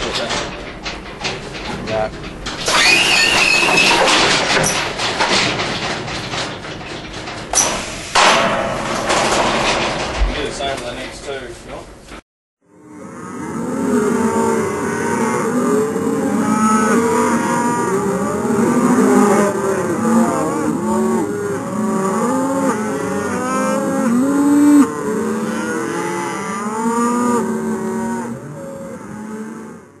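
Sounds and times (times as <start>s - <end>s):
cattle mooing: 12.8s - 30.0s.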